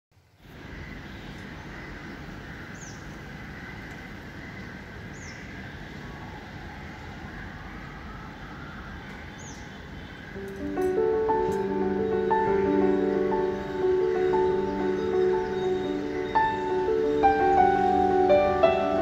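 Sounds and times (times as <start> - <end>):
steady hiss: 0.2 - 19.0
high bird chirps: 8.9 - 19.0.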